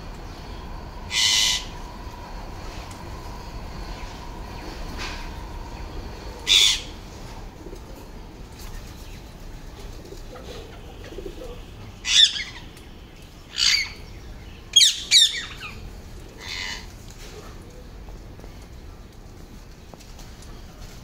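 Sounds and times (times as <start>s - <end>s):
parakeets screeching: 1.1s - 1.8s, 4.6s - 7.3s, 12.0s - 12.7s, 13.5s - 14.0s, 14.7s - 15.8s, 16.4s - 16.9s.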